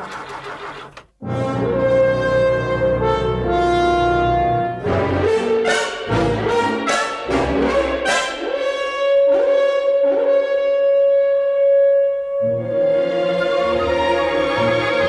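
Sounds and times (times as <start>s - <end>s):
orchestral brass chords: 1.2s - 15.0s.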